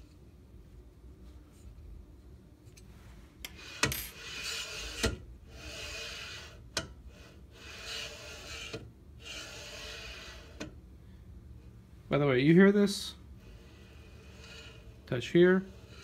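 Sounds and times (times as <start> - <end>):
gantry scraping on metal frame: 3.5 - 10.7, 13.4 - 16.0.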